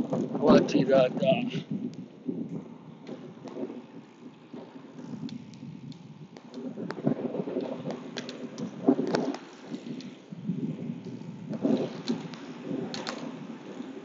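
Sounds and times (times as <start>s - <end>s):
wind buffeting microphone: 0.0s - 14.0s
faint clicks: 4.5s - 10.2s, 11.0s - 14.0s.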